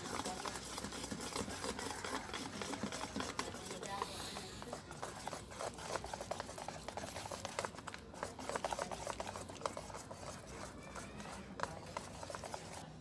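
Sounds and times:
whisk clicking in metal bowl: 0.0 - 12.9
wet stirring of batter: 0.0 - 13.0.

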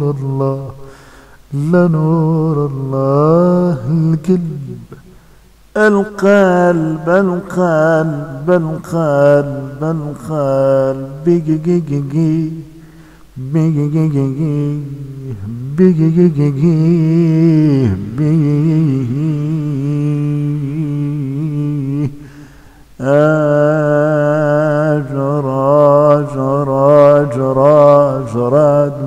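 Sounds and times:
man singing a devotional chant: 0.0 - 29.0.

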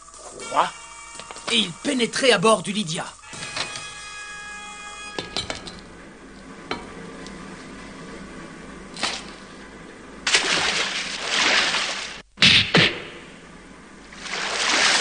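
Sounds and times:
water splashing: 9.0 - 9.5, 10.2 - 12.3, 14.1 - 15.0.

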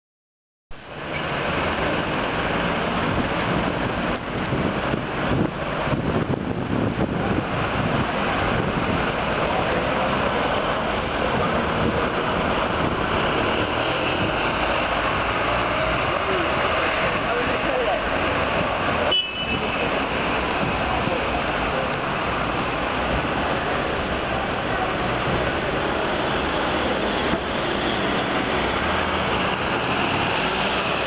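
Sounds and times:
street traffic noise: 0.7 - 31.0
wind blowing on microphone: 2.8 - 9.7, 20.2 - 29.0.

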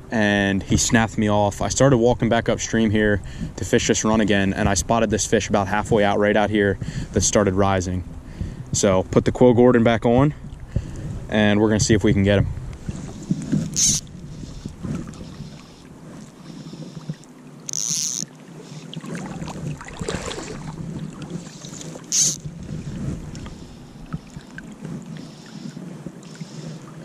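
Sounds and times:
wind on the microphone: 0.0 - 17.2, 18.9 - 27.0
fly line swishing: 13.0 - 26.8
creek water rushing: 17.6 - 22.4.

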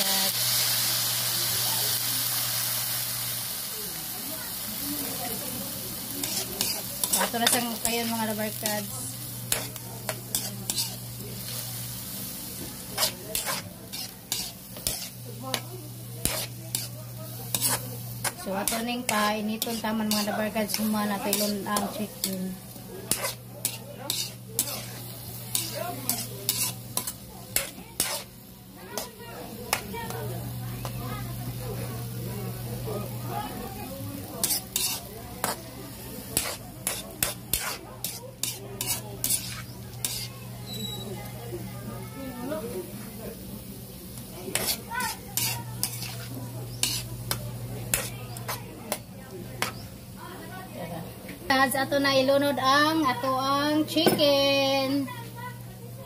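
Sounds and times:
vegetables sizzling in oil: 0.0 - 56.0
metal spatula scraping wok: 6.2 - 29.2, 34.4 - 41.2, 44.5 - 48.6, 49.6 - 49.8.

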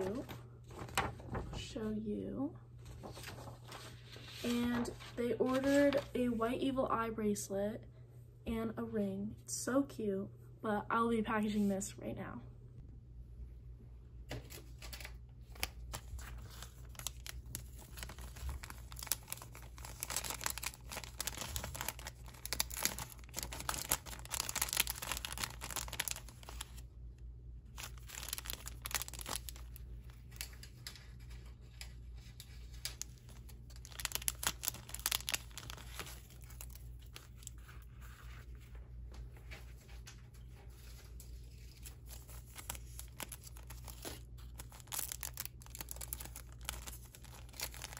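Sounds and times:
plastic bags crinkling: 14.6 - 26.8, 27.7 - 38.2, 40.4 - 47.9.

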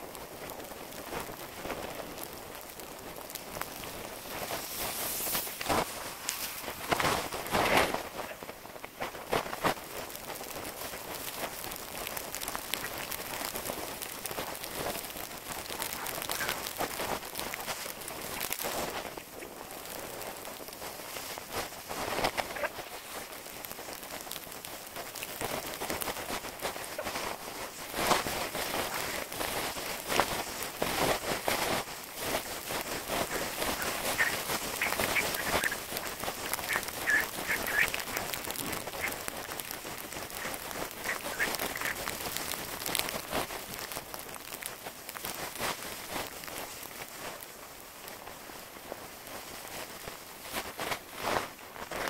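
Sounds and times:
snowboard scraping over snow: 0.4 - 11.8, 25.4 - 44.0.

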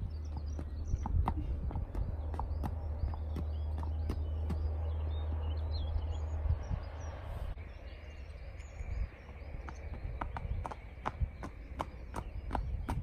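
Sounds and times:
horse hooves on pavement: 0.0 - 4.8, 9.0 - 13.0
small birds chirping: 0.0 - 13.0
wind rumble on microphone: 0.0 - 13.0.

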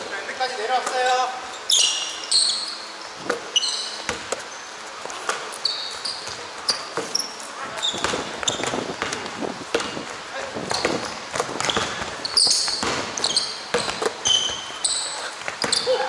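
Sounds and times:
sneakers squeaking on court: 0.9 - 16.0
basketball bouncing on gym floor: 4.0 - 4.5, 6.1 - 16.0.

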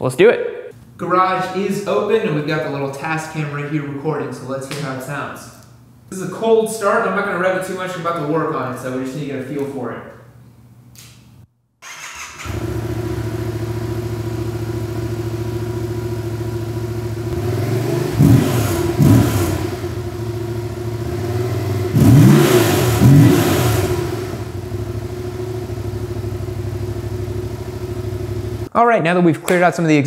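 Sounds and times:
motorcycle engine starting: 11.8 - 28.7
motorcycle engine idling and revving: 12.4 - 28.7.

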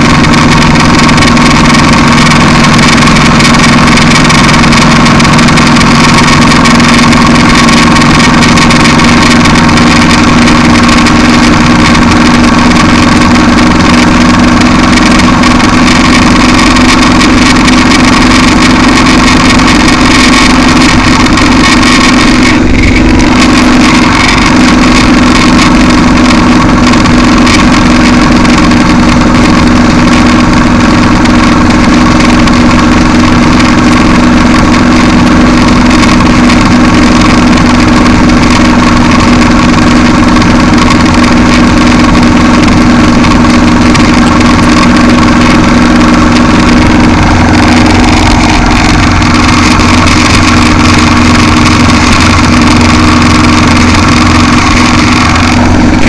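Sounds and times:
motorcycle engine cruising: 0.0 - 56.0
wind and road noise: 0.0 - 56.0.

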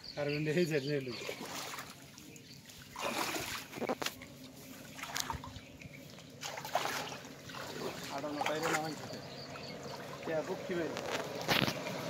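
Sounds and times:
shallow water trickling: 0.6 - 12.0
short water splashes: 1.0 - 12.0.

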